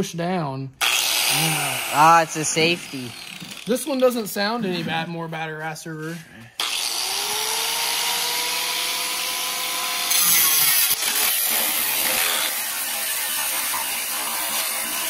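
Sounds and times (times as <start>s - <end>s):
grinding wheel on steel: 0.8s - 4.4s, 6.6s - 15.0s
angle grinder whining: 0.8s - 4.6s, 6.6s - 15.0s.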